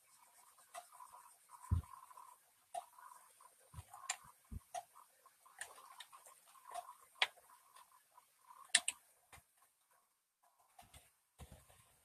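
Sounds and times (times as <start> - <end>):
faint stylus scratching: 0.0 - 4.6
stylus tapping on tablet: 1.6 - 2.1.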